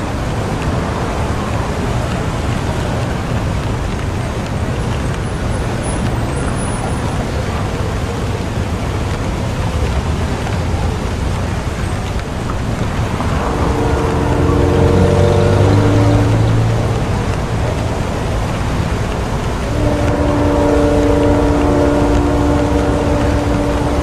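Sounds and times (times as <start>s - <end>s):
low traffic rumble: 0.0s - 24.0s
rain: 0.0s - 24.0s
vehicle engine passing: 12.6s - 24.0s.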